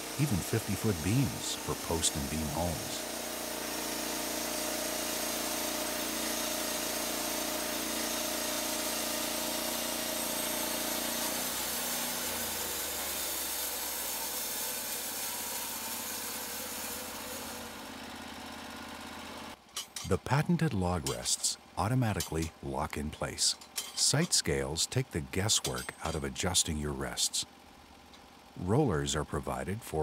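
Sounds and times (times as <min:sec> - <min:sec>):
band blade sawing log: 0:00.0 - 0:17.8, 0:20.0 - 0:26.6
sawmill engine running: 0:00.0 - 0:30.0.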